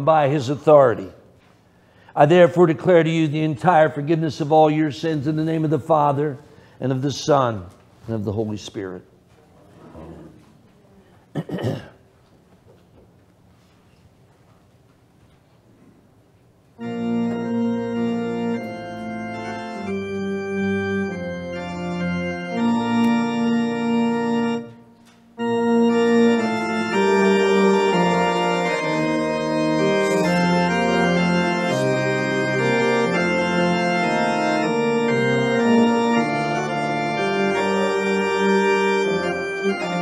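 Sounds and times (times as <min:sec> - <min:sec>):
organ playing held chords: 0:00.0 - 0:01.2, 0:01.9 - 0:07.6, 0:16.8 - 0:40.0.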